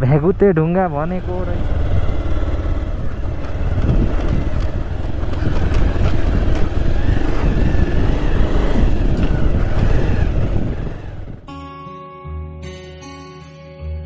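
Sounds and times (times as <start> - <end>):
motorcycle engine running: 0.0 - 11.5
bike knocks and rattles: 3.2 - 10.7.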